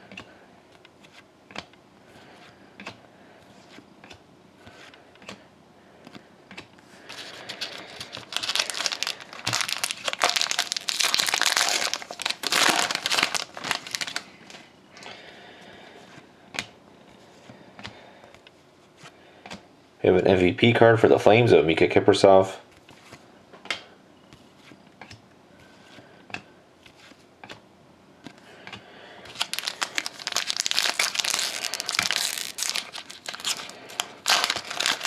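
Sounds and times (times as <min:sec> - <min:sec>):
foil wrapper crinkling: 0:07.1 - 0:14.6, 0:29.3 - 0:35.0.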